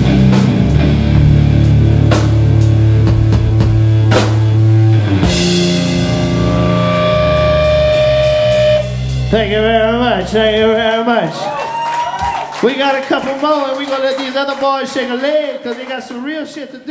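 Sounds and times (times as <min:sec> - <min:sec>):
punk rock band playing live: 0:00.0 - 0:10.8
wavering high tone: 0:06.1 - 0:09.0.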